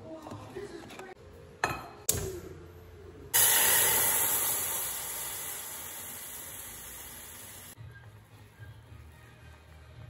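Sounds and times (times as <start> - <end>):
liquid sizzling in hot pot: 3.4 - 7.8.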